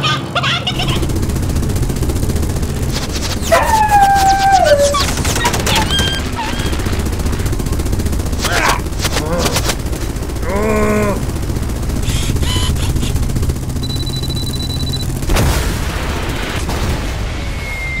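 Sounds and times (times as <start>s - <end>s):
machine-gun fire: 0.7s - 17.3s
dog's drawn-out cry: 3.4s - 6.8s.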